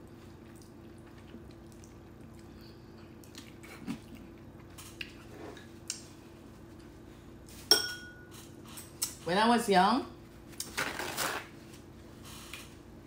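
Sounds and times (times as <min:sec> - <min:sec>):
wet chewing and smacking: 0:00.0 - 0:06.1.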